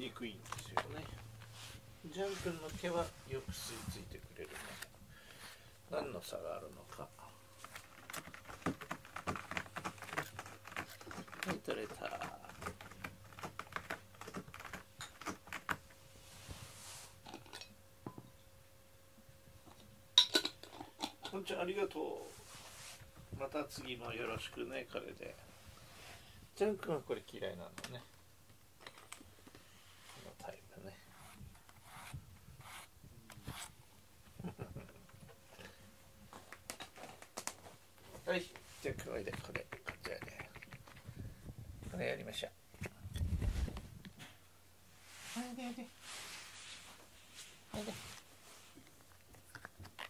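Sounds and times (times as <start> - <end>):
soft rustle: 0.5 - 5.7, 16.1 - 17.3, 22.2 - 26.5, 29.6 - 33.7, 37.6 - 39.2, 42.8 - 49.2
brush scratching through cat fur: 1.4 - 4.9, 16.1 - 17.2, 22.2 - 23.1, 31.0 - 33.7, 45.0 - 48.8.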